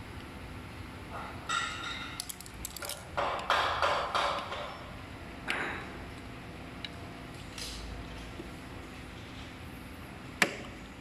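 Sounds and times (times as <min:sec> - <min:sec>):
hands scraping metal parts: 0:02.2 - 0:03.1.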